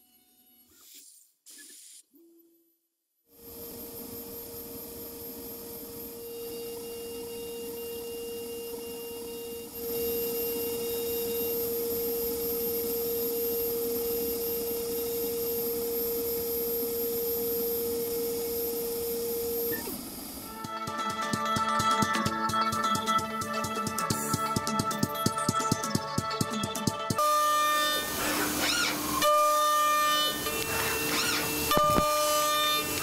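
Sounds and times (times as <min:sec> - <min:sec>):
milling cutter whining: 0:03.5 - 0:33.0.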